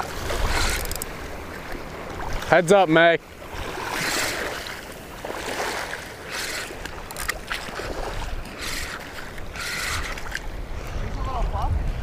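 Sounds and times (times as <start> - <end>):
water sloshing and lapping: 0.0 - 12.0
low wind rumble: 3.4 - 12.0.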